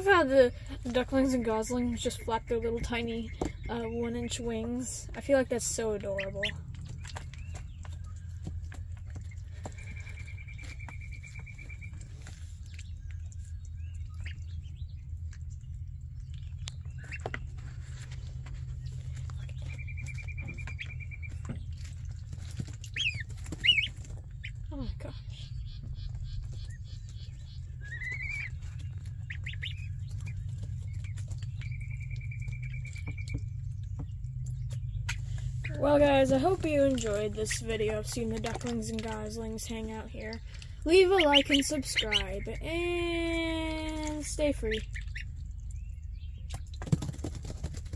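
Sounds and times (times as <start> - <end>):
ducklings and goslings peeping: 0.0 - 46.9
steady low hum: 0.0 - 47.9
light pattering and clicks: 0.2 - 47.9.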